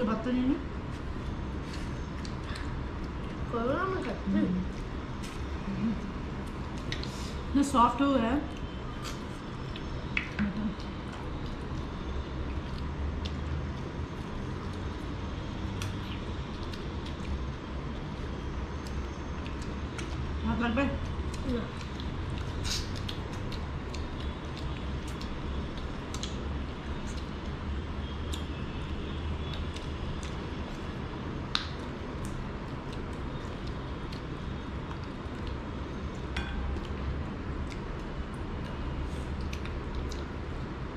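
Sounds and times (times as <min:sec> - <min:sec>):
low room hum: 0:00.0 - 0:40.9
people eating with mouth smacks: 0:00.8 - 0:07.5, 0:08.5 - 0:20.4, 0:21.0 - 0:40.9
faint clicks from eating: 0:37.6 - 0:40.4.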